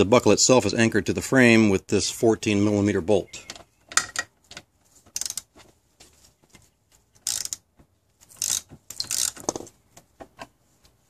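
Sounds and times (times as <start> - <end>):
socket ratchet clicking: 5.1 - 5.5, 7.2 - 7.6, 8.3 - 9.6.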